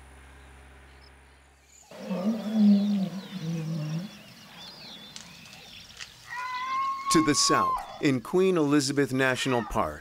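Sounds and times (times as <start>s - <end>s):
birds chirping faintly: 0.2s - 8.6s
elephant low call: 1.8s - 5.2s.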